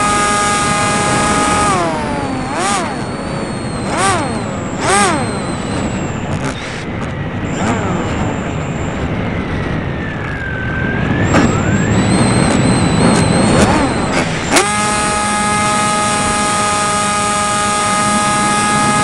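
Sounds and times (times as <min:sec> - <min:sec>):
motor and propeller whine: 0:00.0 - 0:19.0
wind rush: 0:00.6 - 0:14.6.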